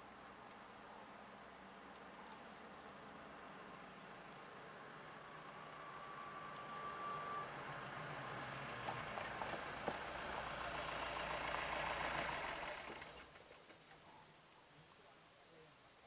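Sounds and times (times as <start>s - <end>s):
vehicle engine humming: 3.0s - 13.7s.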